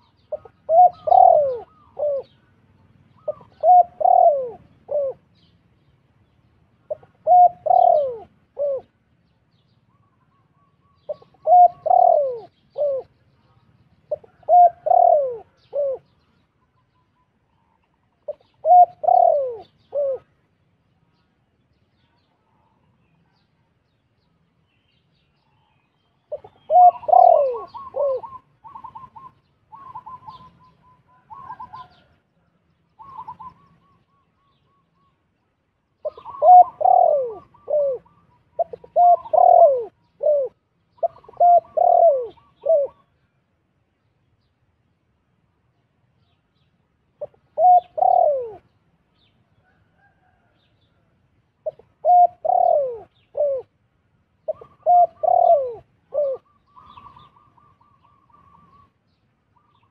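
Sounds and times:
doves cooing: 0:00.0 - 0:05.4, 0:06.9 - 0:09.0, 0:09.9 - 0:13.2, 0:14.1 - 0:16.2, 0:17.6 - 0:20.4, 0:26.3 - 0:32.2, 0:33.0 - 0:35.1, 0:36.0 - 0:43.2, 0:47.2 - 0:48.7, 0:51.6 - 0:53.8, 0:54.4 - 0:59.0.

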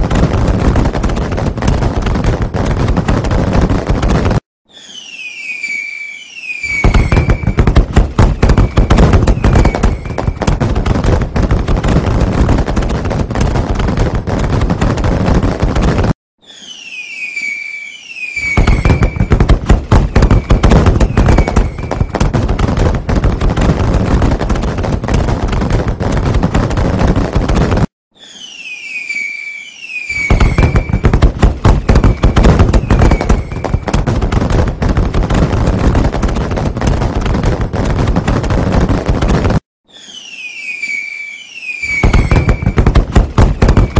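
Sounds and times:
fireworks crackling bangs: 0:00.0 - 0:43.9
firework whistles falling in pitch: 0:04.6 - 0:10.4, 0:16.4 - 0:19.4, 0:20.0 - 0:22.3, 0:28.1 - 0:33.9, 0:39.8 - 0:43.9.

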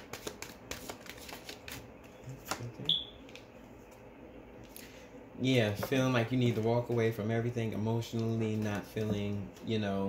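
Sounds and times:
cards being shuffled: 0:00.0 - 0:04.0, 0:08.1 - 0:09.6.

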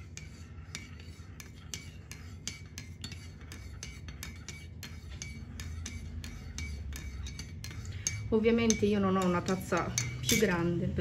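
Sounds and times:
low steady hum: 0:00.0 - 0:11.0
teaspoon clinking in ceramic mug: 0:05.2 - 0:10.6.

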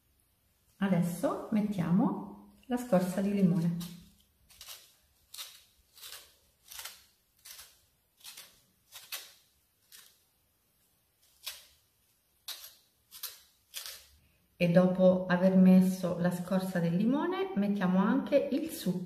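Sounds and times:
lemon scraping on hand grater: 0:03.0 - 0:10.1.

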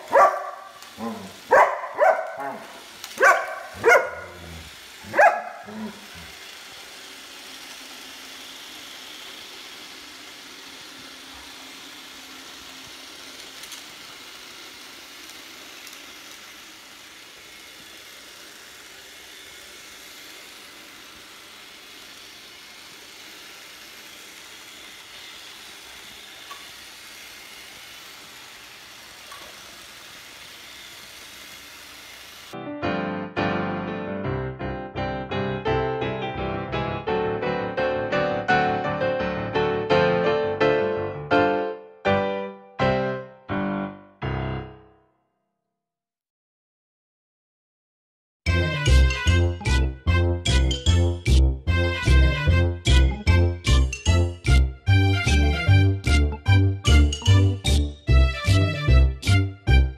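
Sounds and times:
dog barking: 0:00.0 - 0:04.4, 0:05.1 - 0:06.0
robot vacuum whirring: 0:00.0 - 0:32.6.

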